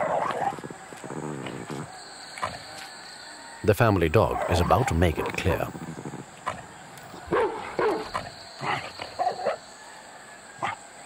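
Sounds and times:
dogs barking: 0.0s - 0.7s, 4.2s - 5.6s, 6.4s - 9.6s.

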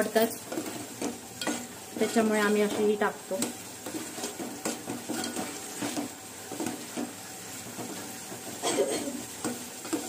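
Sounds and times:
frying sizzle: 0.0s - 10.0s
spoon scraping metal pot: 0.4s - 6.7s.

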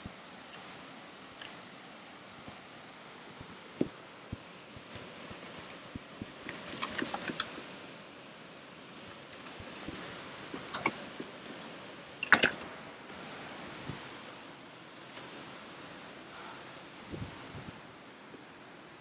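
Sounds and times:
gear clicking and rattling: 3.8s - 7.7s, 8.9s - 12.7s.

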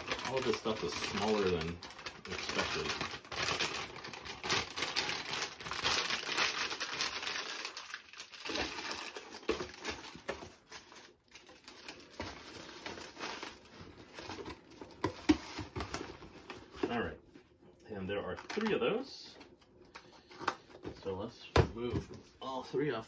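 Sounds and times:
packaging crinkling: 0.0s - 16.8s, 18.3s - 18.8s.

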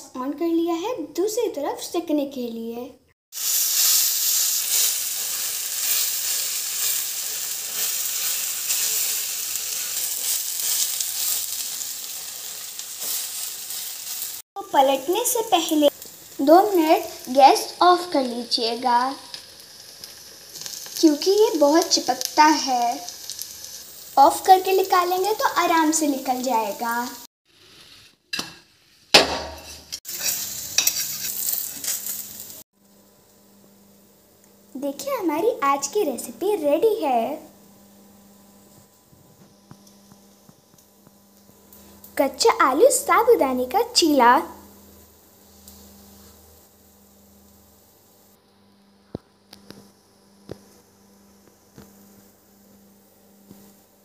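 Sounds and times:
batter sizzling in oil: 3.3s - 54.0s
metal clanking on pan: 29.2s - 31.3s
steel spoon scraping: 29.6s - 32.3s.

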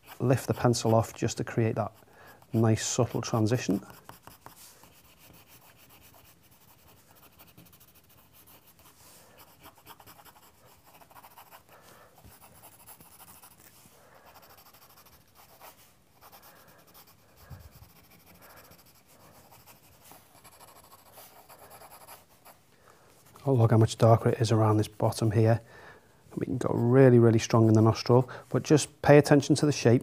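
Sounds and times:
pencil scratching on paper: 0.0s - 22.6s, 26.4s - 28.1s.

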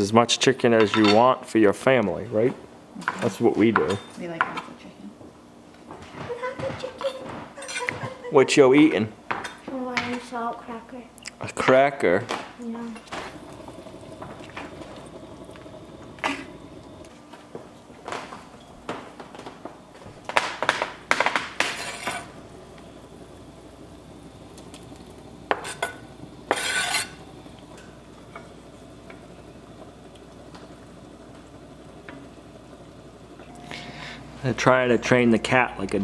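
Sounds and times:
sauce simmering: 11.4s - 36.0s
food scraped into pot: 21.5s - 22.4s, 25.5s - 27.3s.

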